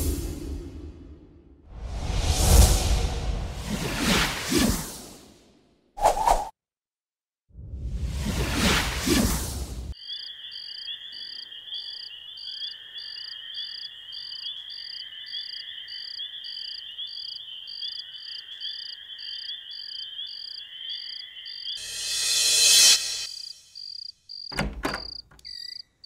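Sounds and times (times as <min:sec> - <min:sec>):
whoosh: 0:00.0 - 0:05.2
crickets trilling: 0:10.0 - 0:21.8, 0:23.3 - 0:26.0.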